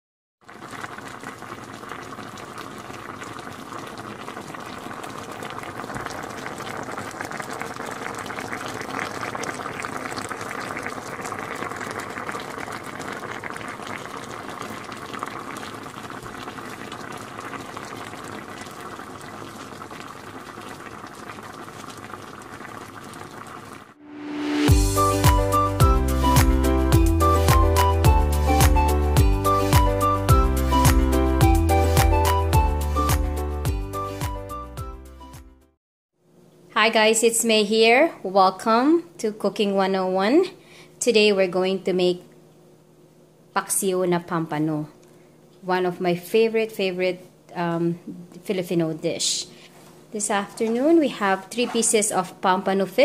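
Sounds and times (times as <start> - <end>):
liquid boiling and bubbling: 0.4 - 28.6.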